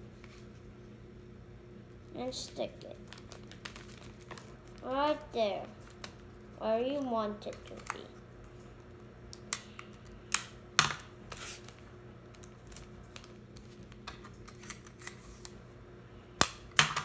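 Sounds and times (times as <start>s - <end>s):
tape and paper clicks and rustles: 3.0s - 4.8s, 6.9s - 8.1s, 9.3s - 15.6s.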